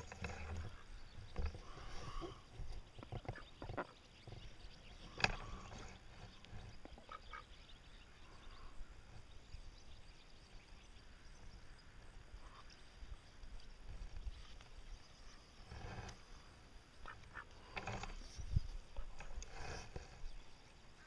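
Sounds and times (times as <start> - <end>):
ducks quacking faintly: 5.1 - 9.0, 12.3 - 12.8, 15.3 - 18.2.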